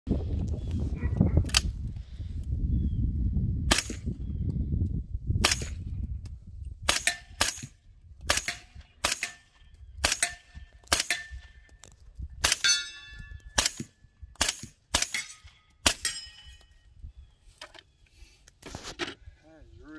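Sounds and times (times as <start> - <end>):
suppressed rifle shots: 3.7 - 4.1, 6.9 - 11.5, 12.4 - 16.2
metallic ringing: 12.6 - 13.4, 15.1 - 16.7.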